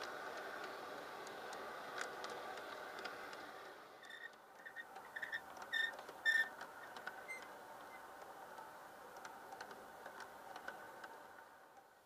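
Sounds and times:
sharp metallic squeak: 0:04.1 - 0:06.5.

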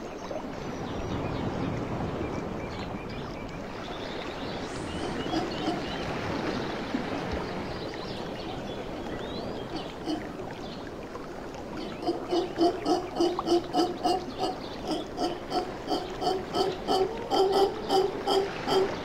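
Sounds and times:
howler monkeys calling: 0:04.7 - 0:06.3, 0:09.4 - 0:10.4, 0:11.8 - 0:19.0.

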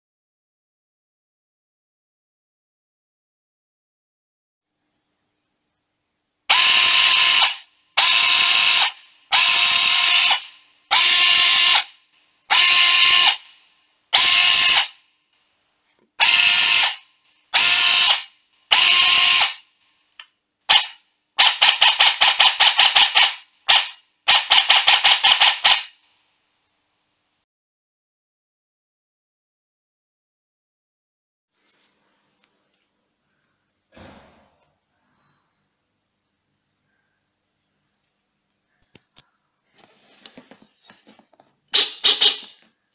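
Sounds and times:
airsoft gun motor whirring: 0:06.5 - 0:13.6, 0:14.2 - 0:15.0, 0:16.2 - 0:17.0, 0:17.6 - 0:19.6, 0:20.7 - 0:26.0.

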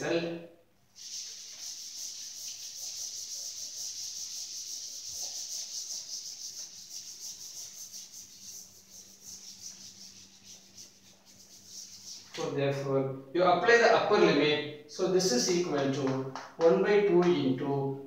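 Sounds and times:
cloth wiping blackboard: 0:01.0 - 0:12.5.

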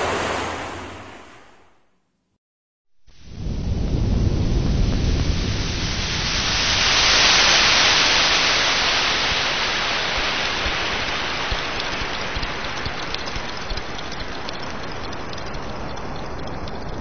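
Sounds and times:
surf washing up a beach: 0:00.0 - 0:01.4, 0:04.3 - 0:12.4.

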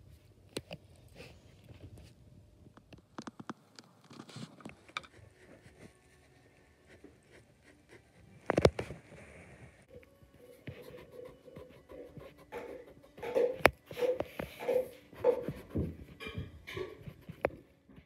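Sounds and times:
pencil tapping on paper: 0:10.7 - 0:17.6.

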